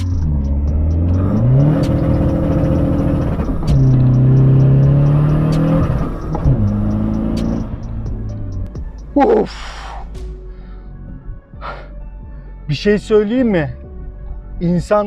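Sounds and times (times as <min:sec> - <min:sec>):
diesel engine accelerating: 0:00.0 - 0:09.2.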